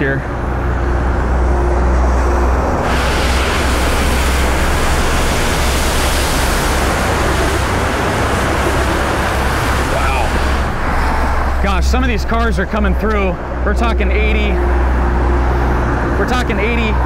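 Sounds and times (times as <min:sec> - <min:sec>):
low rumble: 0:00.0 - 0:17.0
car tyres spraying floodwater: 0:01.8 - 0:17.0.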